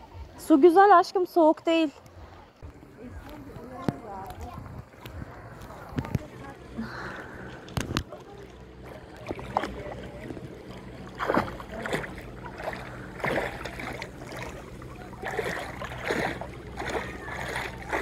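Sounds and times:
water splashing around swimmer: 7.0s - 18.0s.

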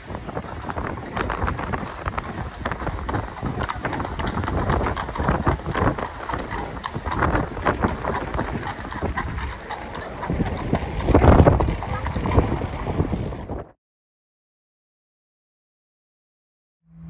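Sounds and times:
horse hooves clip-clopping on stone: 0.0s - 13.6s.

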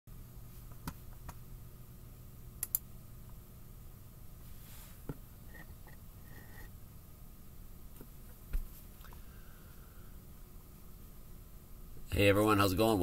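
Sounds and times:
low electrical hum: 0.1s - 13.0s
sharp clicks and light taps: 2.6s - 2.9s.

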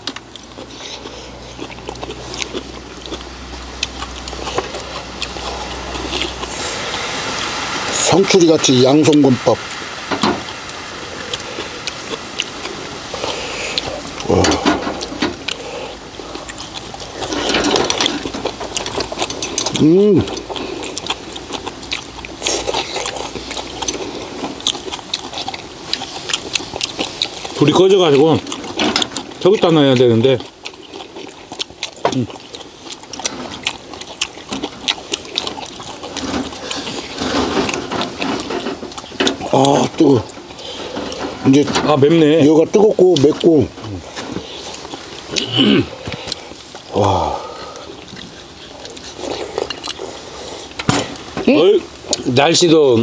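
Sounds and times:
people chewing: 0.0s - 53.0s
hiss: 5.5s - 16.0s.

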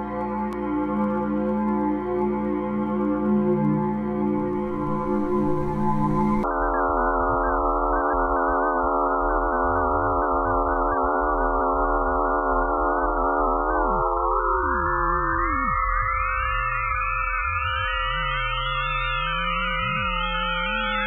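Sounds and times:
eerie electronic drone: 0.0s - 21.0s
gliding electronic tones: 4.4s - 6.4s.

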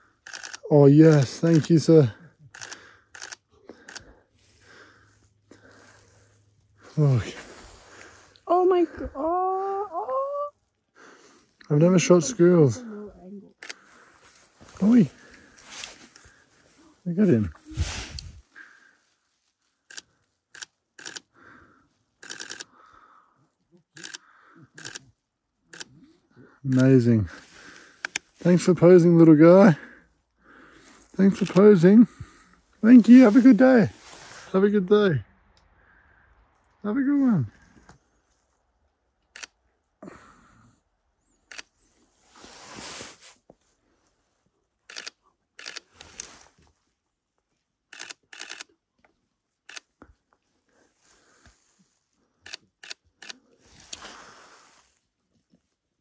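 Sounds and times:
soft rustle: 2.6s - 8.4s, 12.8s - 21.2s, 30.7s - 34.6s, 41.5s - 52.6s, 53.2s - 56.0s
camera shutter clicks: 20.6s - 21.3s, 22.2s - 22.7s, 47.9s - 48.7s.

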